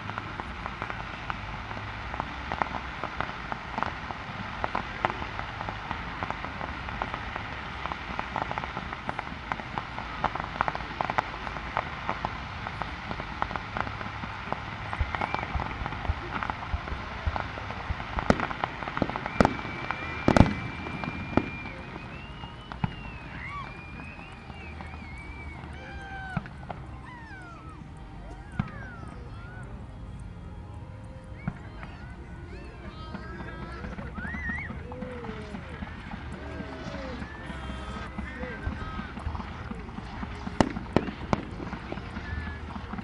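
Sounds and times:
firework shells bursting: 0.0 - 25.5, 34.4 - 43.0
high firework whistle: 0.0 - 29.7, 31.2 - 43.0
firework crackling: 0.0 - 43.0.

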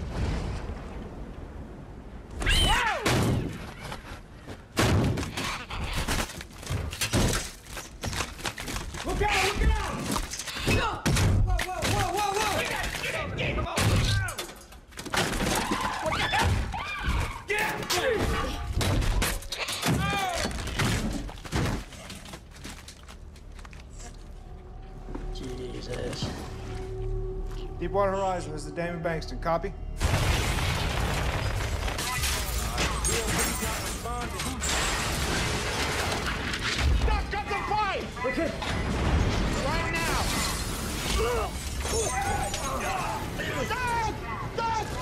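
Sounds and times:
glass shattering: 30.0 - 36.9, 38.8 - 43.4.

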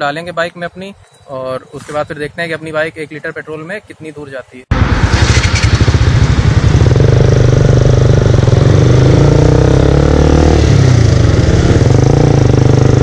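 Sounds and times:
motorcycle engine at speed: 4.7 - 13.0.

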